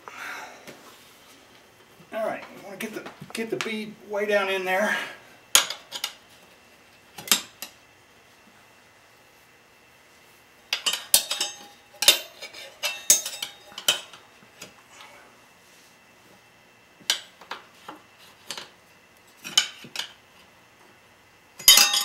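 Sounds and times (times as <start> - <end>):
metal tyre irons clinking on rim: 10.8 - 14.2, 21.6 - 22.0.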